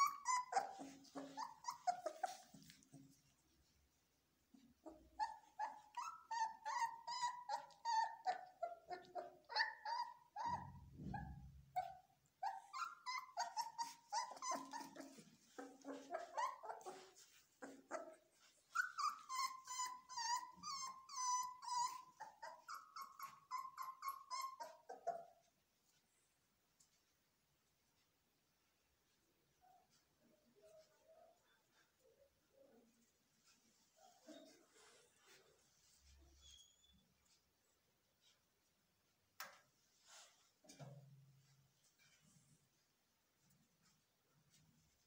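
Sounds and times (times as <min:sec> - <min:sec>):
puppies whining and yelping: 0:00.0 - 0:03.6, 0:04.5 - 0:26.0, 0:34.0 - 0:37.5.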